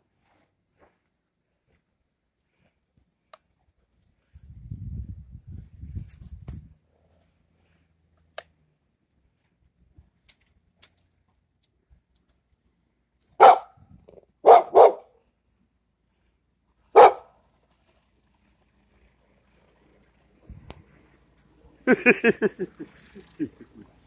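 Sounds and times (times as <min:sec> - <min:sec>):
dog barking: 0:13.4 - 0:13.8, 0:14.4 - 0:15.1, 0:16.9 - 0:17.3.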